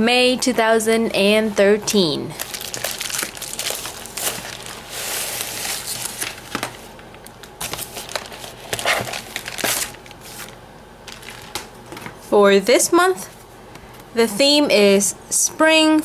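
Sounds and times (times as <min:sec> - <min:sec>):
plastic mailer crinkling: 0:02.4 - 0:11.8.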